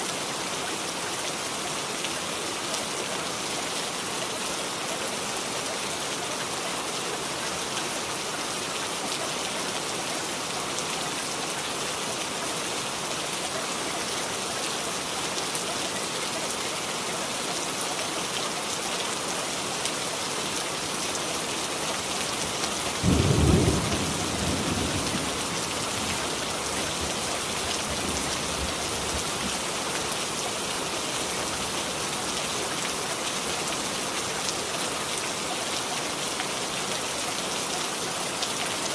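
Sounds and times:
steady rain: 0.0s - 38.9s
low thunderclap rumbling: 23.0s - 25.4s.

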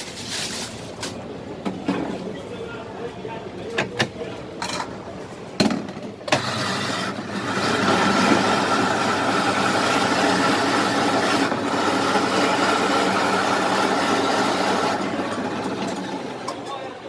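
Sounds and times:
shaved-ice machine running: 6.3s - 16.6s.

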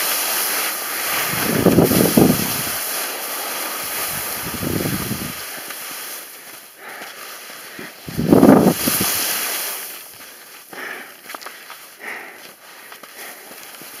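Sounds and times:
skis scraping over snow: 0.0s - 14.0s
wind on microphone: 1.0s - 2.9s, 3.8s - 5.5s, 8.0s - 9.4s.

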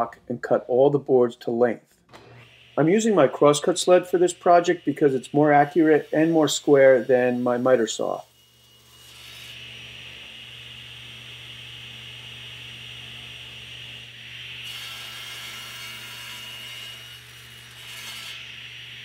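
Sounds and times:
saw blade cutting wood: 2.2s - 9.9s, 14.2s - 19.0s
table saw blade whining: 2.2s - 19.0s.

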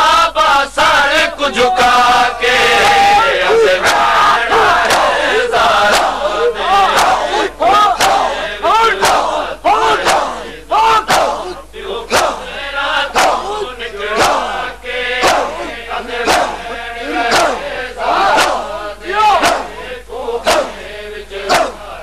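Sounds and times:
crowd of men chanting: 0.0s - 22.0s
hands slapping chests: 3.8s - 8.4s, 9.0s - 12.4s, 13.2s - 13.6s, 14.2s - 14.4s, 15.2s - 17.6s, 18.2s - 18.7s, 19.4s - 19.8s, 20.5s - 20.8s, 21.5s - 21.8s.

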